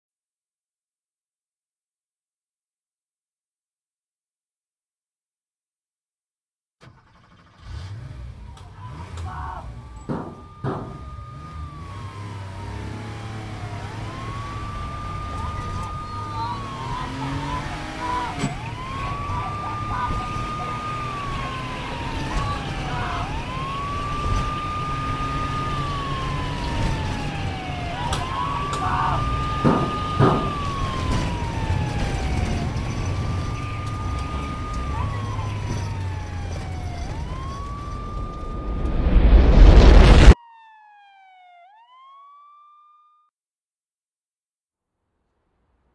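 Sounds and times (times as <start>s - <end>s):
siren wailing: 8.3s - 43.3s.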